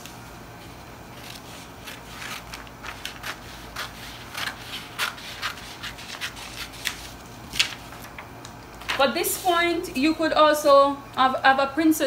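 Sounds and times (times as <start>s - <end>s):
scissors snipping paper: 1.2s - 7.8s.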